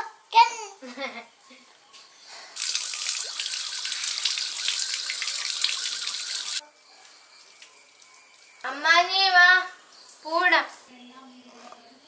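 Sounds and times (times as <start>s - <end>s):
hands washing under water: 2.6s - 6.6s
water running from a tap: 2.6s - 6.6s.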